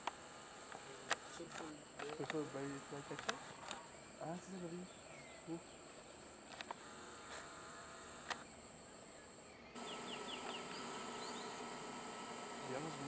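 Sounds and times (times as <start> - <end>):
faint clicks: 0.0 - 2.4, 3.1 - 3.8
insects buzzing: 0.0 - 13.0.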